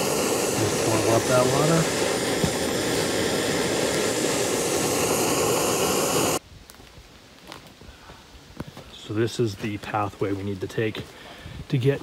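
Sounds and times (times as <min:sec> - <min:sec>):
gas stove burner hissing: 0:00.0 - 0:06.4.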